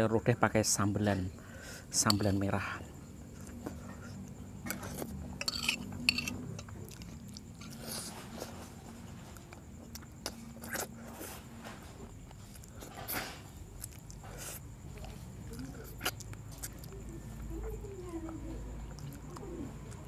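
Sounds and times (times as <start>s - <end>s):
low steady hum: 0.0s - 20.0s
fork scraping a plate: 2.0s - 2.4s, 3.7s - 8.8s
person chewing food: 3.1s - 17.5s, 18.8s - 20.0s.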